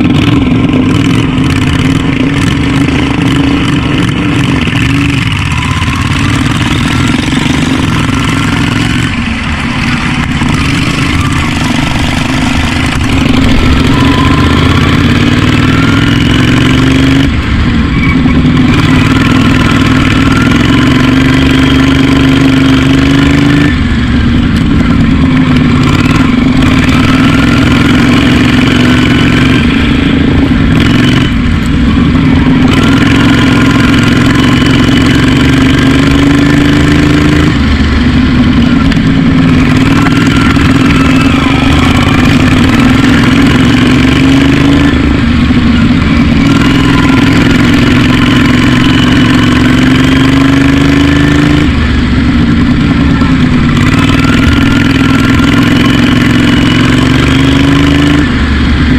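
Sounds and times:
lawn mower engine revving: 0.0 - 58.9.

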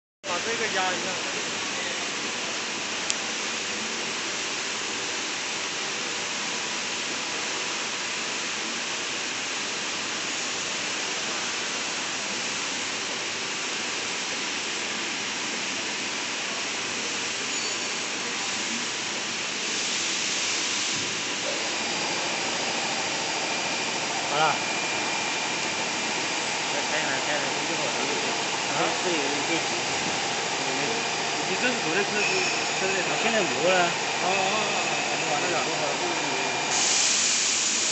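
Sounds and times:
slitting machine hissing: 19.5 - 37.9.

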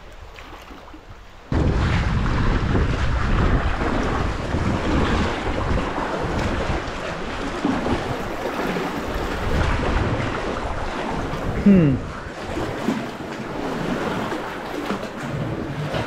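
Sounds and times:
waves splashing against rocks: 0.0 - 16.0
wind buffeting microphone: 1.0 - 16.0.

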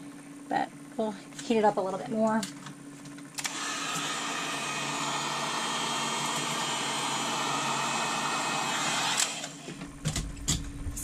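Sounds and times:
heat gun blowing: 3.4 - 9.8.

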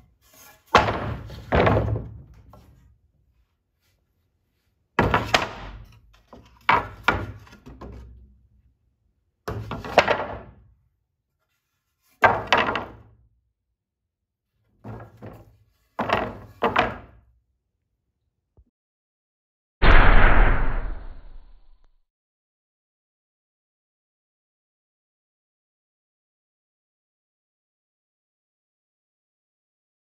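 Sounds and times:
wooden boards knocking together: 0.7 - 2.7, 5.0 - 8.2, 9.5 - 10.6, 12.2 - 13.1, 14.8 - 17.2.

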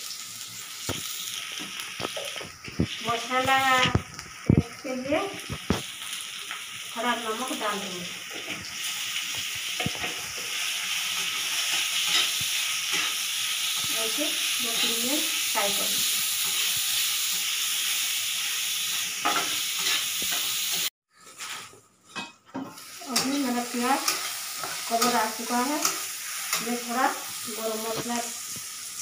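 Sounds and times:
onions sizzling in hot oil: 0.0 - 21.6, 22.5 - 29.0
metal spatula scraping a pan: 9.8 - 13.9, 19.2 - 26.9.

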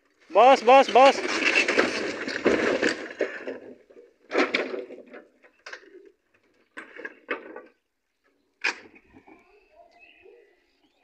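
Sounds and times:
timber and sheet metal crashing: 0.4 - 3.6
clatters and knocks of settling pieces: 0.5 - 7.8.

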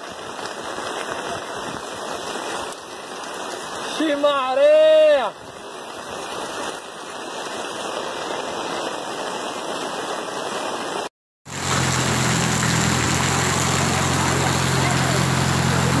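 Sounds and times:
heavy rain pouring: 0.0 - 16.0
vehicle engine humming: 11.5 - 16.0.

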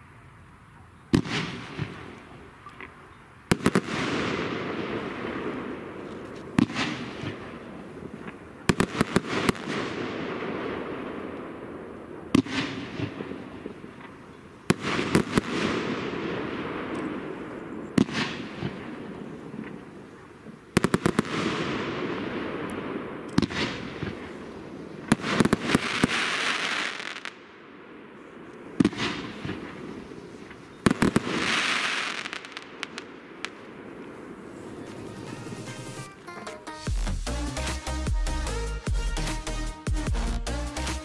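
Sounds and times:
firework bangs: 1.1 - 37.2
firework hiss: 23.4 - 27.4, 28.8 - 36.2.

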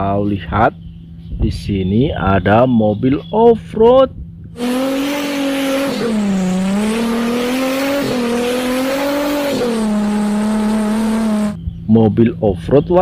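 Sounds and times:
car engine revving: 4.6 - 11.6.

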